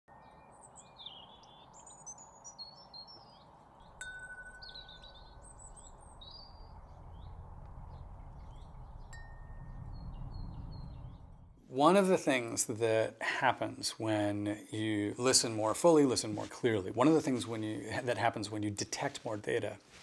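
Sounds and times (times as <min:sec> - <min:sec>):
birds chirping: 0:00.1 - 0:11.6
metal chime ringing: 0:04.0 - 0:06.3, 0:09.1 - 0:10.7
low rumble: 0:05.2 - 0:11.6.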